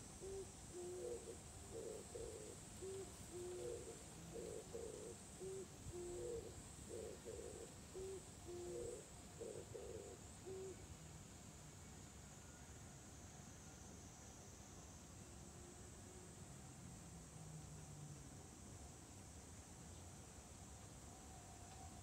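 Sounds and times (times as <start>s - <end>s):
dove cooing: 0.1s - 10.8s.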